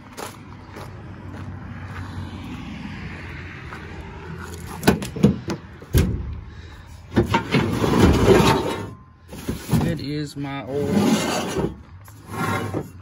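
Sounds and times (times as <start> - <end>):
footsteps on gravel: 0.0 - 5.1.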